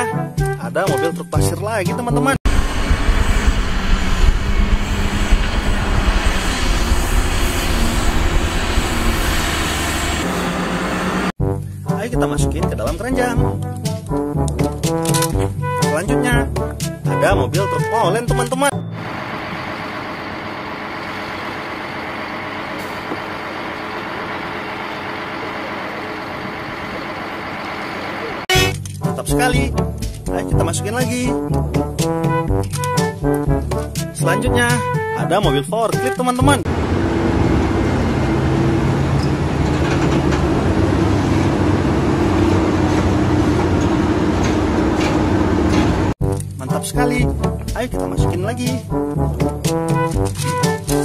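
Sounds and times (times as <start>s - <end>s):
diesel truck engine running: 2.4s - 11.4s, 18.7s - 28.7s, 36.6s - 46.2s.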